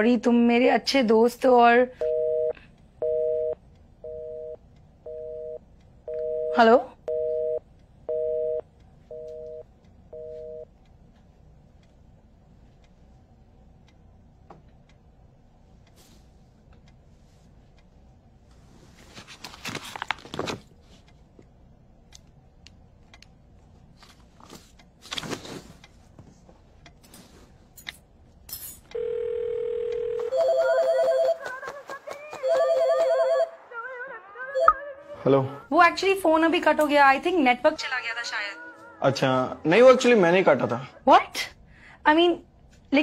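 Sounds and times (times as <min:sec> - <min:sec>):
phone ringing electronic tones: 0:02.0 - 0:10.7, 0:29.0 - 0:31.5, 0:32.4 - 0:33.7, 0:34.6 - 0:34.9.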